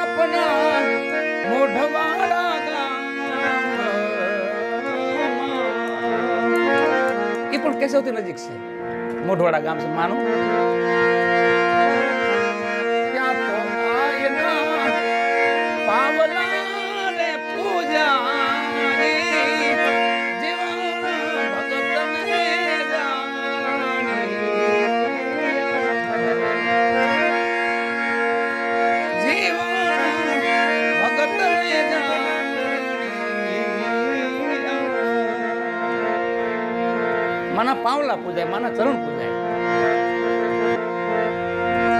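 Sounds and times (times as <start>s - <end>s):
gliding melody: 0.0s - 41.9s
harmonium chords: 0.0s - 41.9s.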